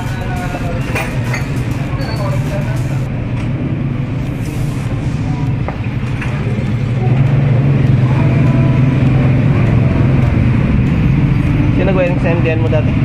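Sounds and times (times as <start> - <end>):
vehicle engine idling: 4.2 - 13.0.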